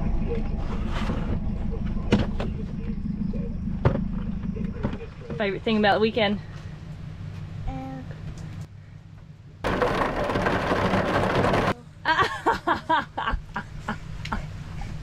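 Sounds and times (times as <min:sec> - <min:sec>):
woman laughing loudly: 0:12.1 - 0:14.4.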